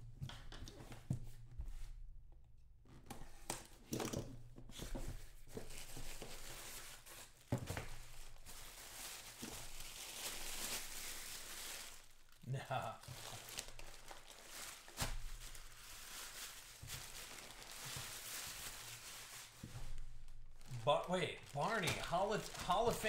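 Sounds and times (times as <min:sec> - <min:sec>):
plastic wrapping crinkling: 0:05.5 - 0:23.0.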